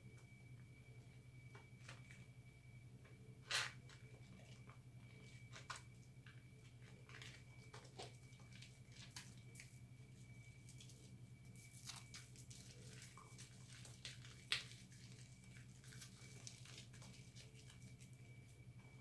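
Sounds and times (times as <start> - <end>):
steady low hum: 0.0 - 19.0
soapy hands squishing: 7.2 - 18.6.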